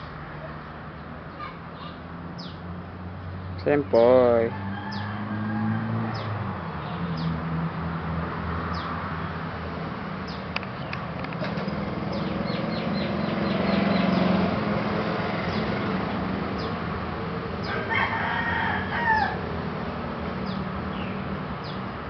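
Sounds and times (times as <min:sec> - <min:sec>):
small birds chirping: 0:00.0 - 0:03.9, 0:04.9 - 0:05.1, 0:06.1 - 0:09.5, 0:10.1 - 0:16.9, 0:17.6 - 0:17.9, 0:20.4 - 0:22.0
rooster crowing: 0:04.5 - 0:06.4, 0:17.6 - 0:19.5.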